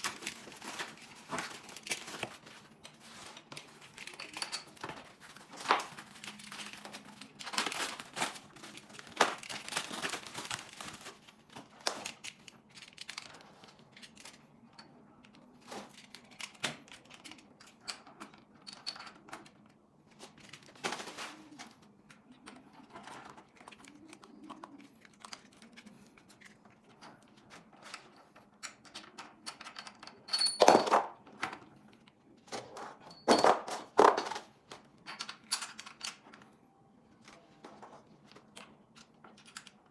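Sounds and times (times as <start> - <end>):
clicks and rustles of handling: 0.0 - 39.9
foam wrap crinkling and tearing: 5.1 - 12.2.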